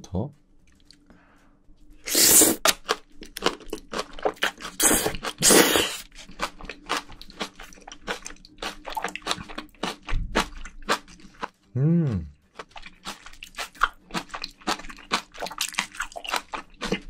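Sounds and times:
loud slurping: 2.1s - 2.7s, 4.7s - 6.1s
crunching chews: 2.2s - 11.5s, 12.5s - 17.0s.

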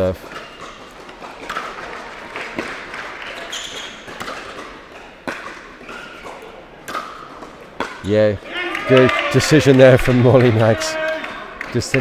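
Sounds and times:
ball bouncing on indoor court: 0.0s - 8.1s
paddles hitting plastic ball: 0.0s - 8.1s.

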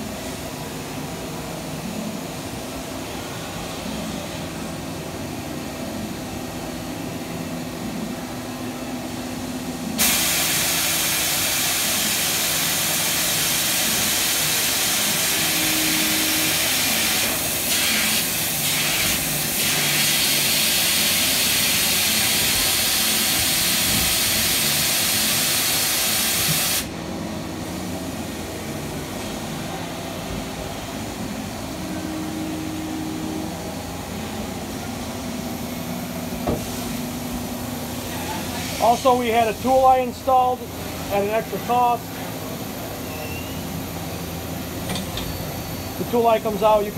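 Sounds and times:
machine hum: 20.5s - 46.9s.

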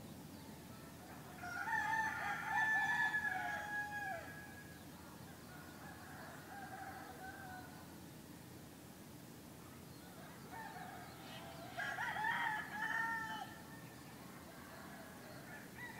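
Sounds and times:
rooster crowing: 1.0s - 4.7s, 5.4s - 7.8s, 10.1s - 15.9s.

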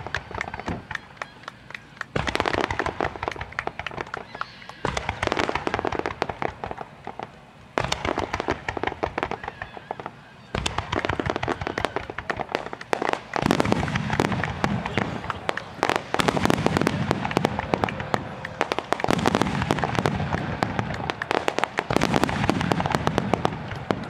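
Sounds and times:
fireworks popping in volleys: 0.0s - 24.0s.

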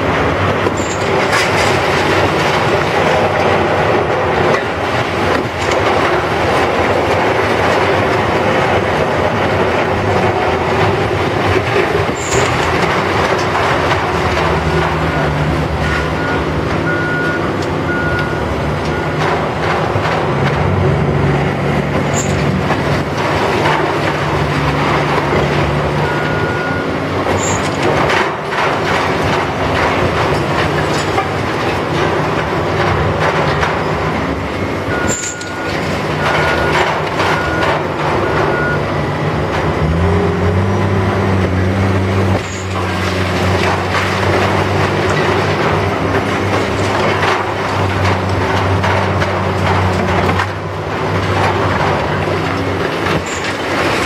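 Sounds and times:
diesel machinery engine drone: 0.0s - 54.0s
reversing alarm beeping: 15.0s - 19.3s, 26.0s - 27.6s, 34.9s - 38.9s.

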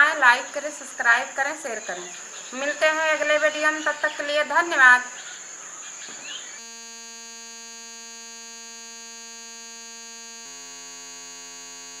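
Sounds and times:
synthesized buzzing chord: 6.4s - 12.0s.

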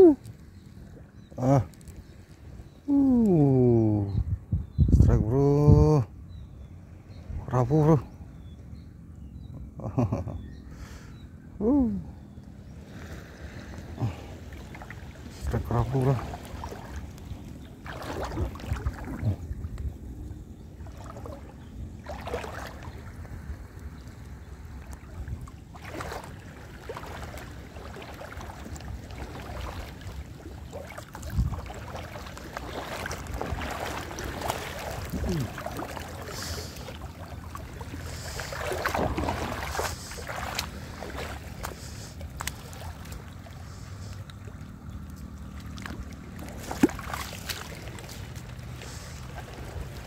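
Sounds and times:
seawater lapping: 0.0s - 4.2s, 6.0s - 50.0s
wind buffeting microphone: 3.6s - 6.5s, 15.1s - 36.2s
small splashes and knocks: 13.7s - 19.9s, 20.8s - 50.0s.

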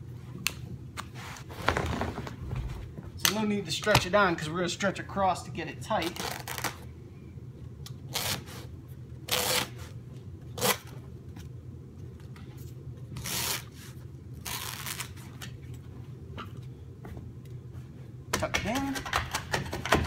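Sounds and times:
steady low hum: 0.0s - 20.0s
carpet scuffing and rustling: 1.0s - 3.2s.

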